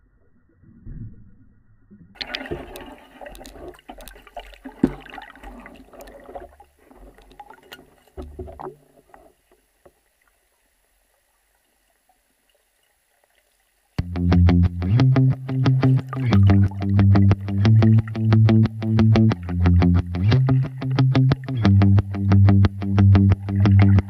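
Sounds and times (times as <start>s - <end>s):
underwater bubbling: 0.0s - 13.4s, 14.7s - 24.0s
sharp underwater clicks and knocks: 2.2s - 10.0s.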